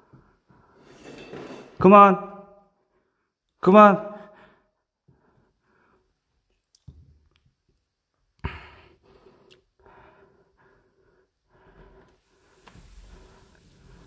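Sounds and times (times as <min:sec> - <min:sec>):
man breathing heavily: 0:04.2 - 0:06.3, 0:08.4 - 0:14.0.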